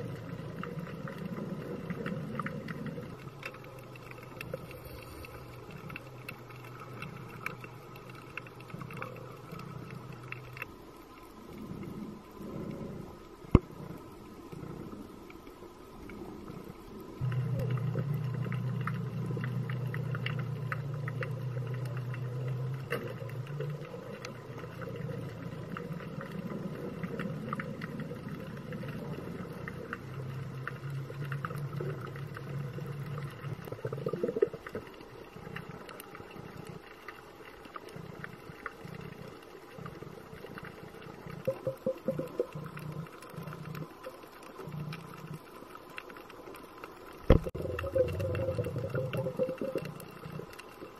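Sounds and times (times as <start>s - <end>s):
low underwater drone: 0.0s - 50.9s
sharp clicks and crackles: 0.0s - 50.9s.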